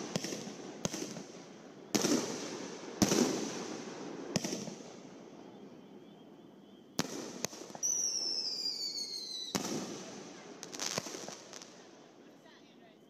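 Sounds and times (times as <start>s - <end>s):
firework shells bursting with echo: 0.0s - 6.0s.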